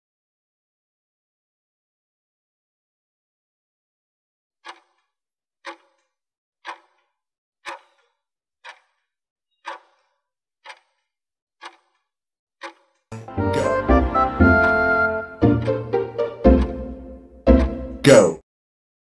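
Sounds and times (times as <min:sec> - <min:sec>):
timer ticking: 0:04.6 - 0:05.0, 0:05.6 - 0:06.0, 0:06.6 - 0:07.0, 0:07.6 - 0:09.0, 0:09.6 - 0:11.0, 0:11.6 - 0:12.0, 0:12.6 - 0:18.3.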